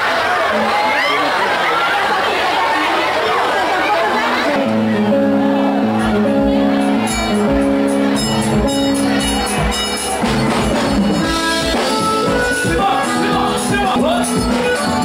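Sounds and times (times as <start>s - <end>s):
band music with steady beat: 4.2s - 15.0s.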